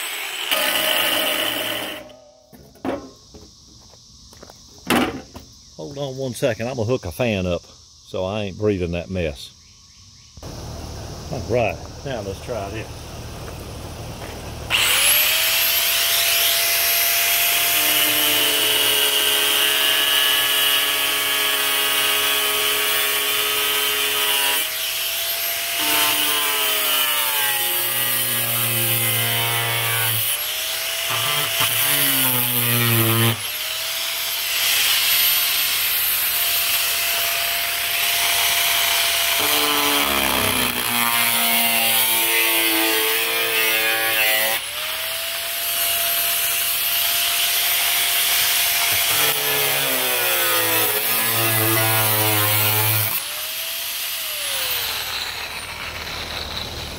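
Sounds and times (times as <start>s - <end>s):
angle grinder cutting sheet steel: 0.0s - 2.3s, 14.7s - 56.9s.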